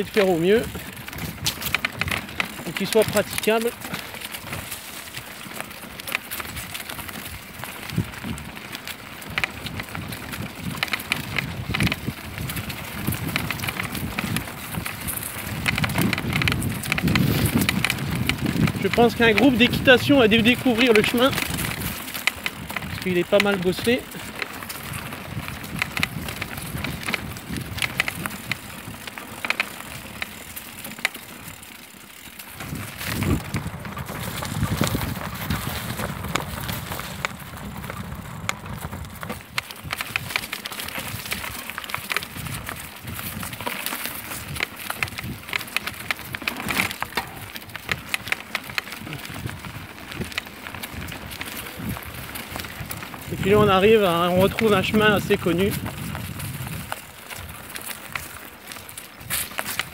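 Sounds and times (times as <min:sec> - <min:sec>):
wind on microphone: 0:00.0 - 0:02.4, 0:06.4 - 0:08.6, 0:09.2 - 0:29.2, 0:32.6 - 0:41.6, 0:42.2 - 0:43.7, 0:49.0 - 0:58.2
bicycle rattling on dirt path: 0:00.0 - 0:59.9.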